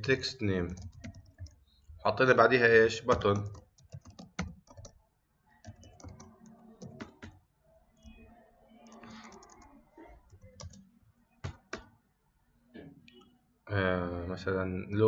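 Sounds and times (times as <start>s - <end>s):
keyboard typing: 0.6s - 1.7s, 3.0s - 5.0s, 5.6s - 7.4s, 8.0s - 11.9s.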